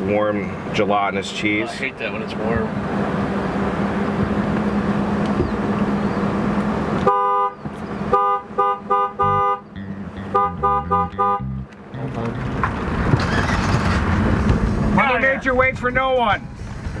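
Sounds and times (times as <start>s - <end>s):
vehicle road noise: 0.0s - 17.0s
two-tone car horn honks: 7.0s - 12.6s.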